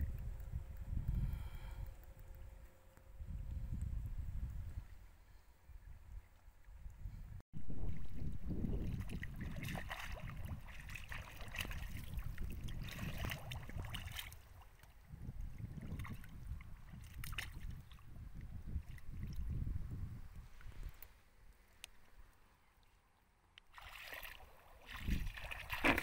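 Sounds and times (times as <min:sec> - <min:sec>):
low rumble: 0:07.6 - 0:09.7
hands splashing in muddy water: 0:07.8 - 0:14.9, 0:15.7 - 0:18.0, 0:23.7 - 0:26.0.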